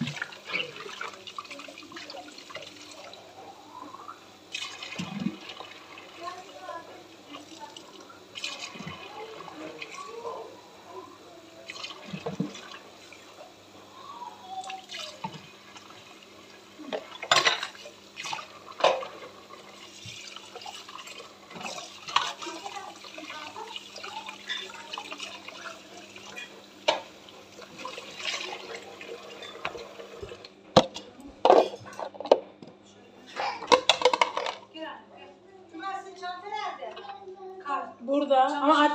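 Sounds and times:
dishes clinking against sink: 0:16.9 - 0:19.4, 0:24.1 - 0:27.2, 0:27.8 - 0:32.5, 0:33.4 - 0:34.6.

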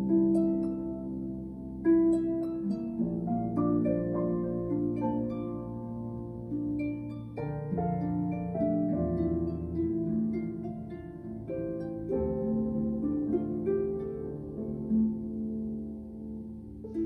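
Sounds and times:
harp plucked notes: 0:00.0 - 0:17.0
piano low notes and chords: 0:00.0 - 0:17.0.

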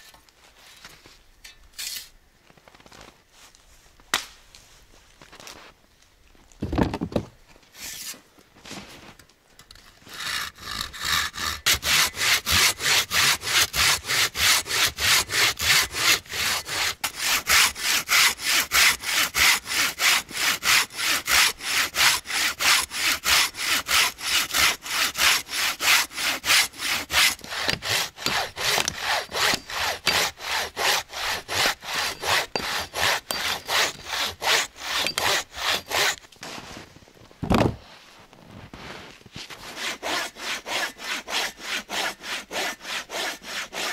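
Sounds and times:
hand saw cutting log: 0:10.0 - 0:36.3, 0:39.5 - 0:43.9.

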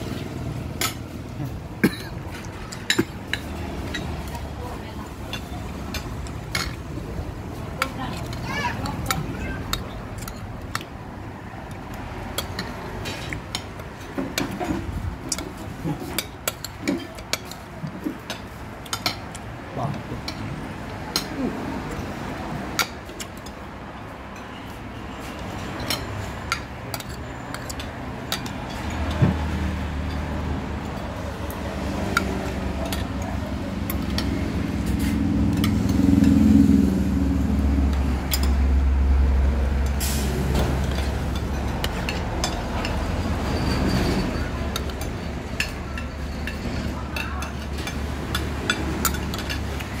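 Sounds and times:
motor vehicle engine running: 0:33.4 - 0:46.7.

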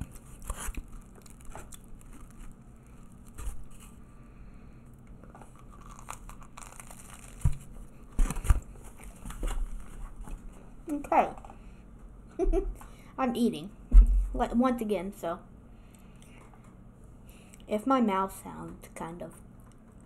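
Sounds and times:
person chewing food: 0:00.0 - 0:04.1, 0:04.9 - 0:09.2.

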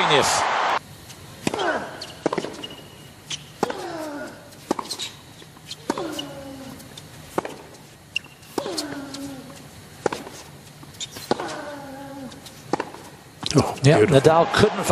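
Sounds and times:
racket hitting tennis ball: 0:01.4 - 0:13.2
player grunting: 0:01.5 - 0:02.0, 0:03.6 - 0:04.5, 0:08.6 - 0:09.5, 0:11.4 - 0:12.4.

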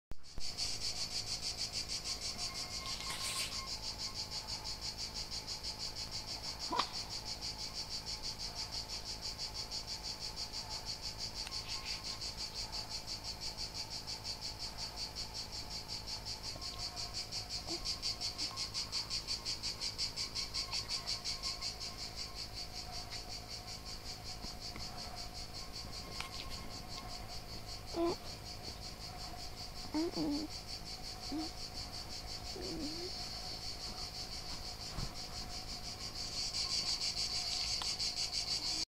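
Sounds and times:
insects chirping: 0:00.2 - 0:38.9.

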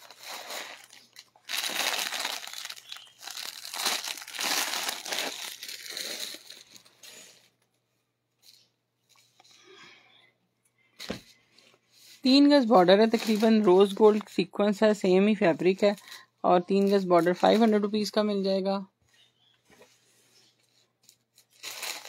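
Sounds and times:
plastic packaging crinkling: 0:00.0 - 0:07.6, 0:12.3 - 0:14.3, 0:21.0 - 0:22.0.

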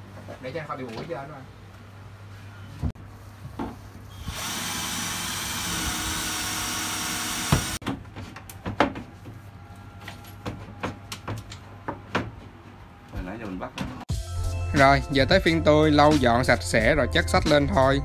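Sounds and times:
cordless drill driving into wood: 0:04.2 - 0:07.8.

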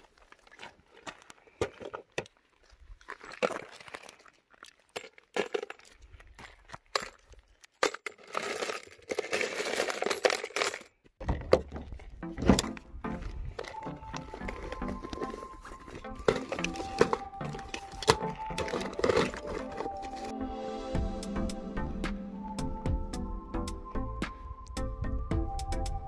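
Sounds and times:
brass casings jingling into can: 0:07.0 - 0:10.9.

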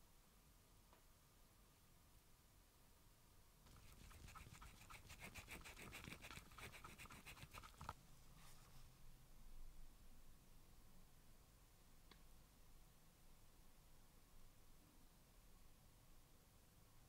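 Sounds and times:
stir stick scraping plastic cup: 0:03.7 - 0:07.9.

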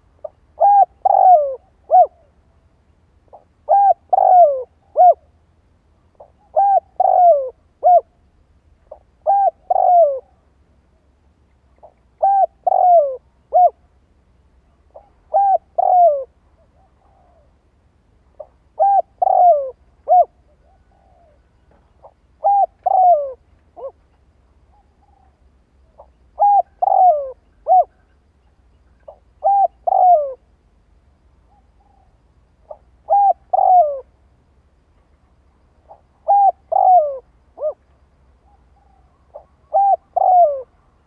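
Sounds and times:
dove cooing: 0:00.0 - 0:02.4, 0:03.3 - 0:05.4, 0:06.1 - 0:08.2, 0:08.8 - 0:10.5, 0:11.8 - 0:13.9, 0:14.9 - 0:17.6, 0:18.4 - 0:24.0, 0:24.7 - 0:28.2, 0:28.9 - 0:30.5, 0:31.5 - 0:34.2, 0:35.8 - 0:40.9.

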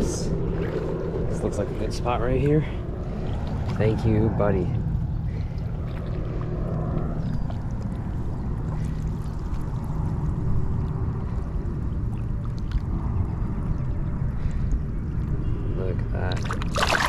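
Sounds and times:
water sloshing around waders: 0:00.0 - 0:15.0, 0:16.3 - 0:17.0
steady low rumble: 0:00.0 - 0:17.0.

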